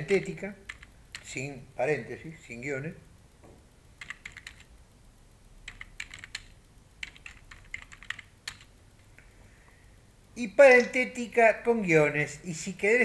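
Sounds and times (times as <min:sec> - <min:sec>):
typing on computer keyboard: 0:00.0 - 0:03.0, 0:03.9 - 0:04.8, 0:05.5 - 0:08.9.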